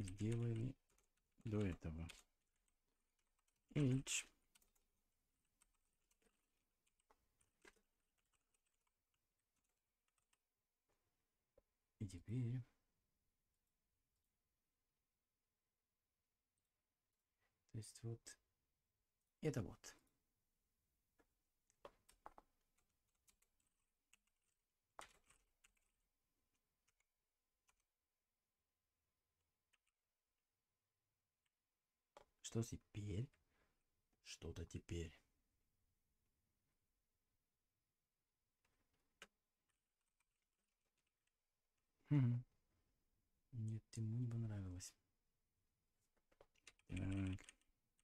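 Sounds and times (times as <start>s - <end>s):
faint keyboard typing: 0.0s - 10.7s, 21.2s - 28.2s, 29.2s - 30.1s, 38.6s - 42.0s, 46.0s - 48.0s.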